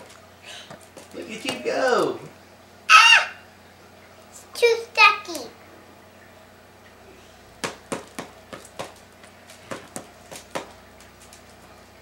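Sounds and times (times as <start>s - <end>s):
rubber ball striking paddle: 7.6s - 9.0s, 9.7s - 10.7s.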